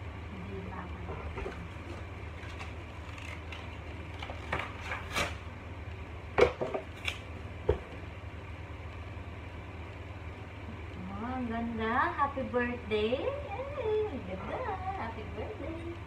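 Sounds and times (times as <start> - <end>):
steady low hum: 0.0 - 16.0
plastic wrapping crinkling: 1.8 - 5.4.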